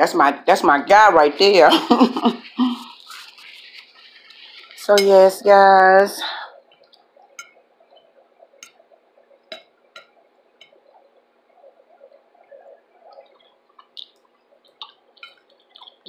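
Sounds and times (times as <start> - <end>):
faint chewing: 2.6 - 4.8, 11.7 - 16.0.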